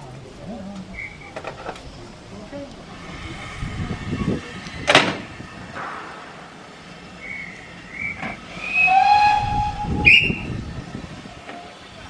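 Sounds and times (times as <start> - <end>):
railway whistle blasts: 7.2 - 10.5.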